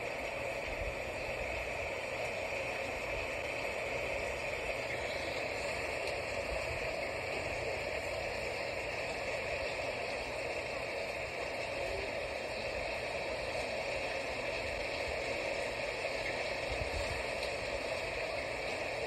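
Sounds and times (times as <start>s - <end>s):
light rain falling: 0.0s - 19.0s.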